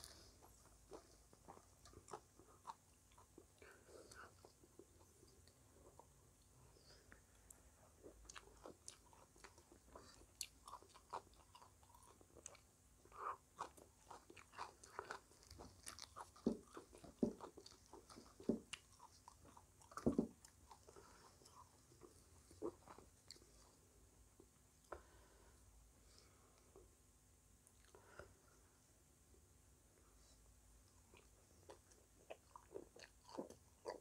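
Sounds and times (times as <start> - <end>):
crunching crisp pastry: 8.1 - 23.7.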